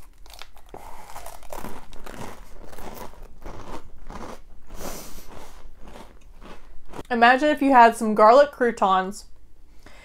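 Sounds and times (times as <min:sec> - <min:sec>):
person chewing crunchy bread: 0:00.0 - 0:07.1.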